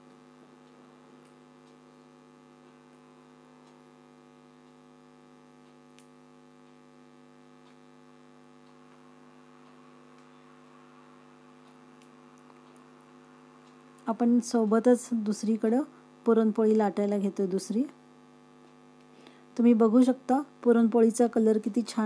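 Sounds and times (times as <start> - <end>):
faint electrical hum: 0.0 - 22.0
faint ticks: 0.1 - 10.8, 11.6 - 14.1.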